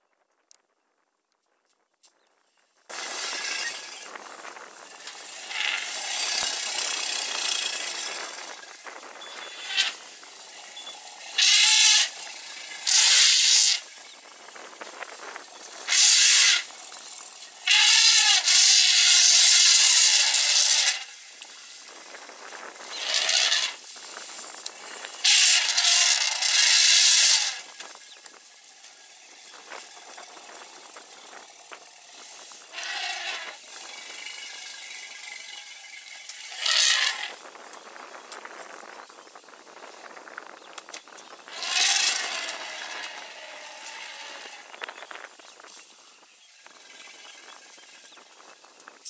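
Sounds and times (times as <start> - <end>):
elephants trumpeting: 4.8 - 13.9, 15.4 - 21.6, 22.8 - 23.8, 24.7 - 27.8, 29.1 - 37.4, 41.4 - 44.9.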